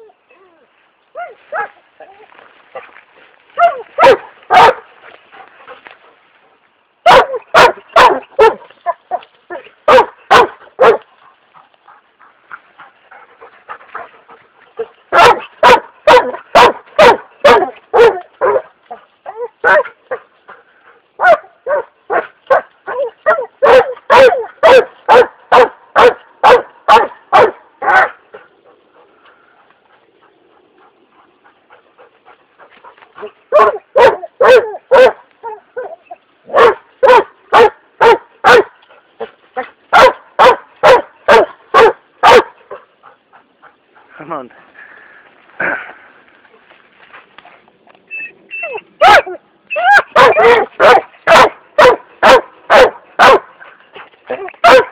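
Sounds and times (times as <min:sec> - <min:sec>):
dog barking: 0:03.6 - 0:04.8, 0:07.0 - 0:11.0, 0:15.1 - 0:18.7, 0:19.4 - 0:20.2, 0:21.2 - 0:28.2, 0:33.2 - 0:35.2, 0:35.8 - 0:38.8, 0:39.9 - 0:42.6, 0:49.0 - 0:53.5, 0:54.3 - 0:54.9.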